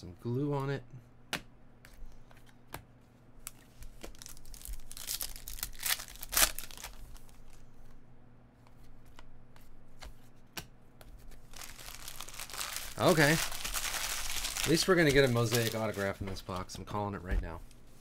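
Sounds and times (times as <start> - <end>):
foil wrapper tearing and crinkling: 4.1 - 7.3, 11.5 - 16.1
cards rustling and flicking: 9.0 - 16.7.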